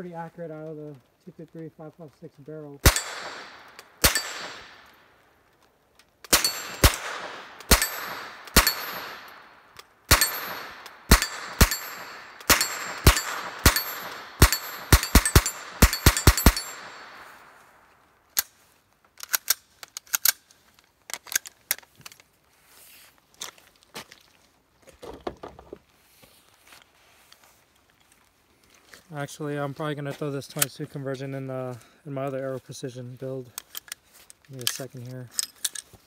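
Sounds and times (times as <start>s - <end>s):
gunshots with echo: 2.8s - 4.9s, 6.3s - 9.5s, 10.1s - 17.4s.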